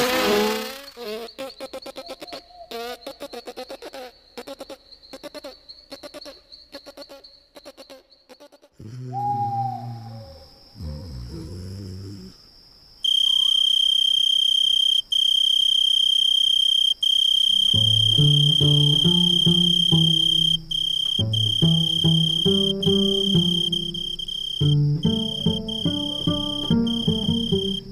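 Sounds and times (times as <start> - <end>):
cricket trill: 0.0 - 27.9
low-note melody: 17.8 - 27.9.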